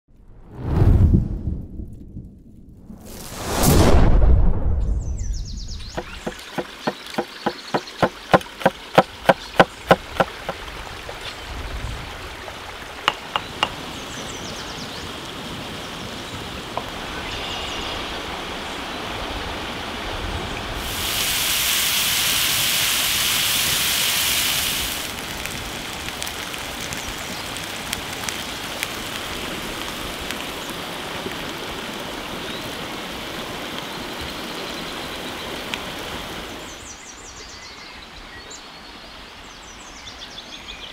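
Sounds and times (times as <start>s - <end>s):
loud even hiss: 2.9s - 4.5s, 20.7s - 26.1s
stream flowing: 5.8s - 40.6s
blade chopping on wooden board: 6.0s - 10.6s, 13.1s - 13.8s.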